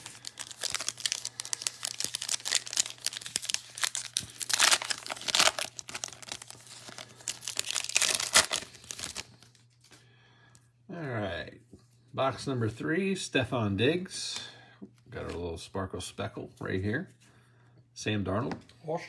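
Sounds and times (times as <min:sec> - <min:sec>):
foil wrapper ripping: 0:00.0 - 0:09.6
foil wrapper crinkling: 0:00.0 - 0:10.0.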